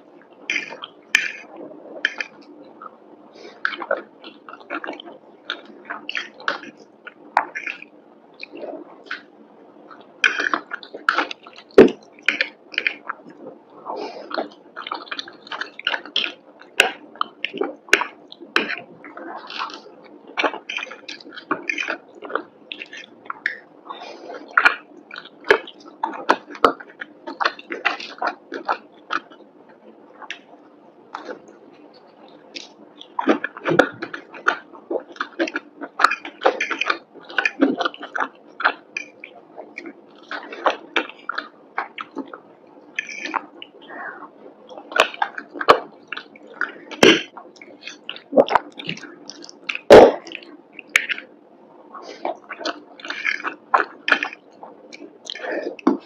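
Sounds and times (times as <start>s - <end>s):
chewing food: 0.2s - 56.0s
wet mouth sounds: 0.5s - 29.4s, 31.1s - 56.0s
sharp mouth clicks: 43.0s - 44.1s, 52.0s - 56.0s.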